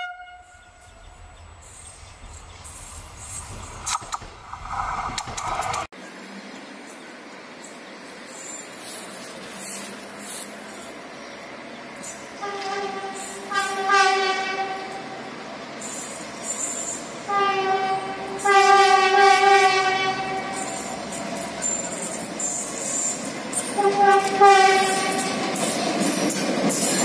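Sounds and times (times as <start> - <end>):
locomotive horn blasts: 0.0 - 1.0, 12.4 - 15.0, 17.2 - 20.7, 23.7 - 25.4.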